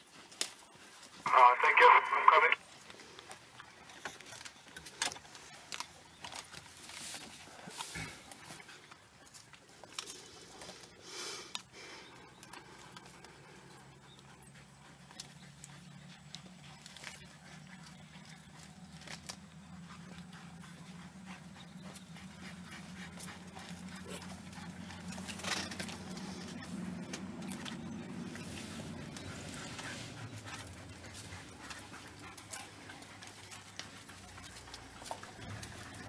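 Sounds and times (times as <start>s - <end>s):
dogs panting: 0.0s - 36.0s
meat and bone crunching: 2.9s - 11.7s, 16.3s - 21.0s
low hum: 12.1s - 36.0s
dogs whimpering: 12.2s - 36.0s.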